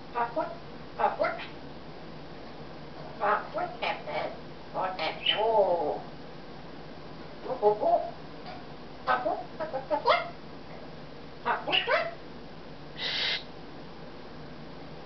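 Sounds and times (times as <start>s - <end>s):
parrot chattering: 0.1s - 1.6s, 3.2s - 6.0s, 7.4s - 8.1s, 9.0s - 10.4s, 11.4s - 12.2s, 13.0s - 13.5s
raspy parrot noise: 0.1s - 1.6s, 3.2s - 6.0s, 9.1s - 10.4s, 11.4s - 12.2s, 13.0s - 13.5s.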